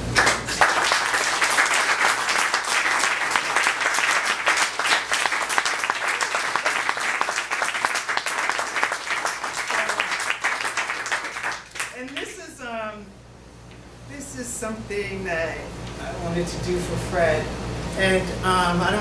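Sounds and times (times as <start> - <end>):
audience applauding: 0.0 - 12.3.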